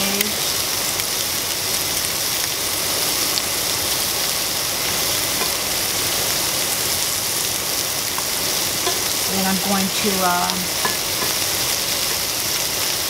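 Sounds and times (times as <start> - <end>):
shrimp sizzling in hot oil: 0.0 - 13.0.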